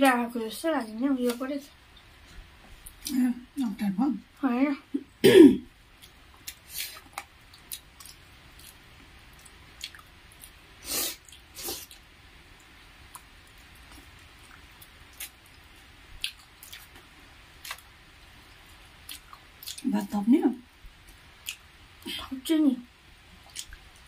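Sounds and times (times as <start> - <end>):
wet chewing and mouth smacks: 6.0 - 15.6, 16.2 - 19.8, 21.0 - 21.7, 23.3 - 24.0.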